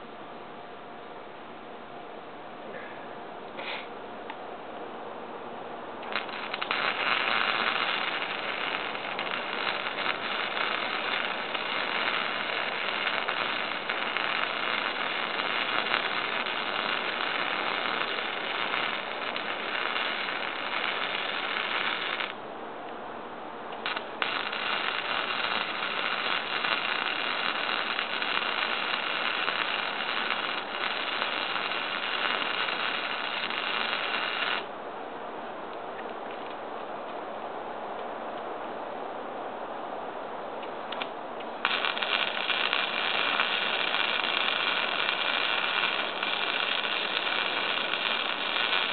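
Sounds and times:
welder arc crackling: 6.0 - 22.4, 23.7 - 34.7, 40.9 - 48.9.

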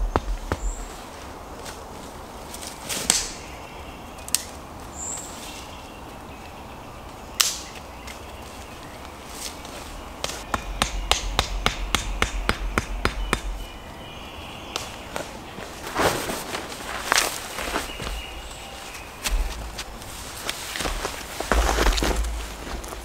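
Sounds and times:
sharp knocks with low thuds: 0.0 - 0.9, 10.2 - 13.8, 19.2 - 20.0, 20.8 - 23.0.

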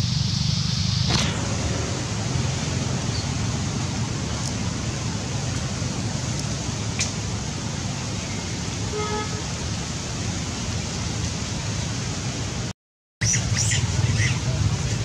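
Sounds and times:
low rumble: 0.0 - 6.9
distant traffic: 0.0 - 15.0
hiss of wind: 0.0 - 15.0.

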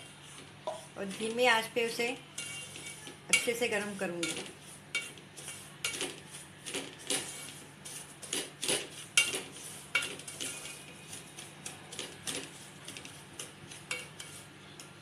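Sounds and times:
wooden spoon scraping metal pot: 0.0 - 14.6.

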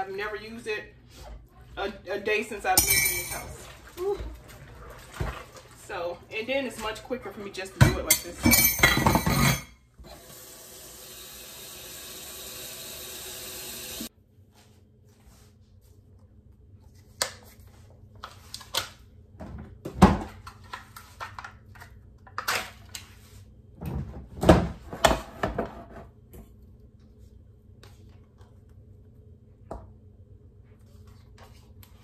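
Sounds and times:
kitchen items knocking and clattering: 2.6 - 5.9, 6.6 - 9.8, 19.4 - 22.9, 23.8 - 26.2.

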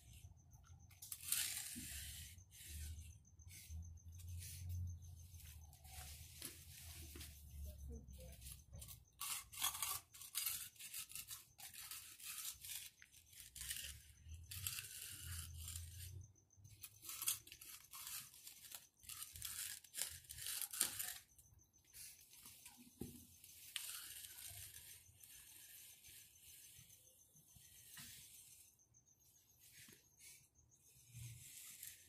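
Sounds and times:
edger scraping wet concrete: 1.0 - 5.4.

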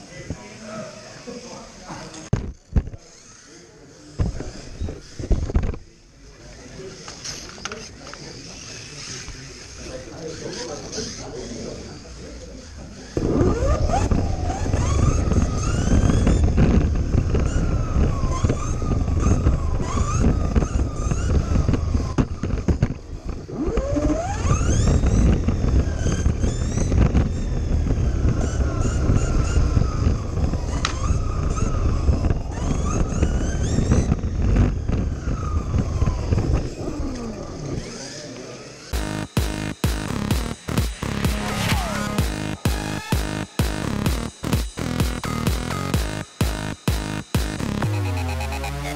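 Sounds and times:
rumble and rattle of toy car: 0.0 - 39.0
small electric motor whining: 0.8 - 44.0.

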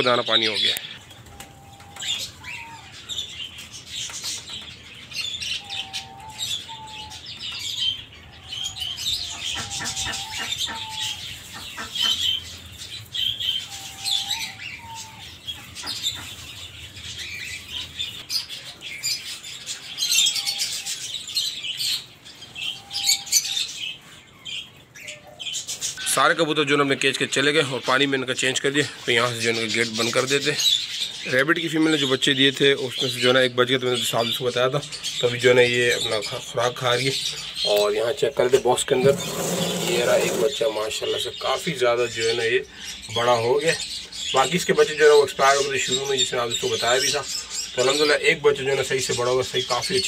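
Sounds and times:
pigeons pecking on tiled floor: 0.8 - 26.0, 38.5 - 41.8
short bird calls: 5.3 - 26.2, 36.0 - 41.6.

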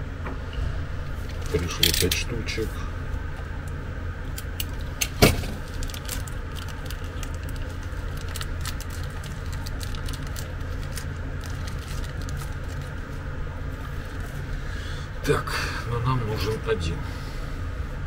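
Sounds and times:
low mains hum: 0.0 - 18.0
plastic packet rustling: 5.4 - 14.5.

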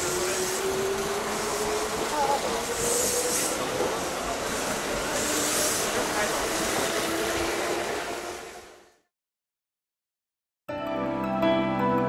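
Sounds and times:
train running noise: 0.0 - 9.0.

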